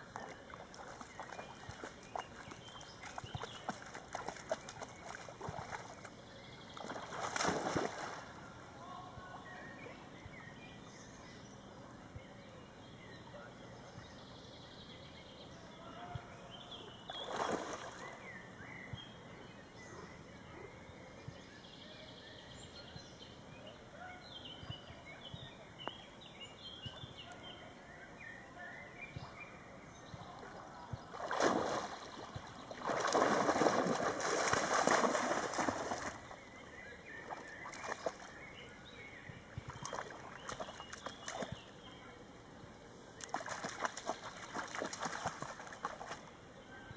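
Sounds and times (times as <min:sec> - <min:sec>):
water splashing: 0:00.0 - 0:06.1, 0:06.7 - 0:08.4, 0:17.1 - 0:18.1, 0:31.1 - 0:36.4, 0:37.2 - 0:38.4, 0:39.6 - 0:41.7, 0:43.2 - 0:46.3
dog sloshing in water: 0:06.8 - 0:08.3, 0:31.1 - 0:36.4, 0:37.2 - 0:38.4.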